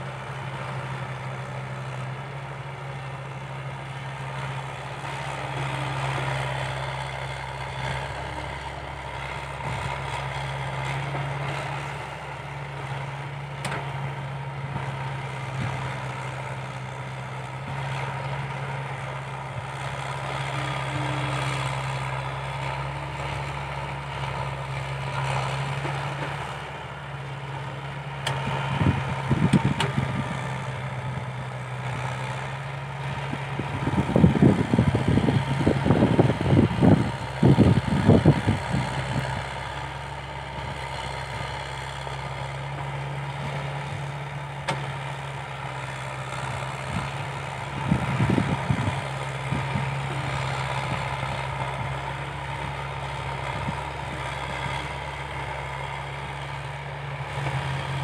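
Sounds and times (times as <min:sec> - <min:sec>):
excavator diesel engine under load: 0:00.0 - 0:58.0.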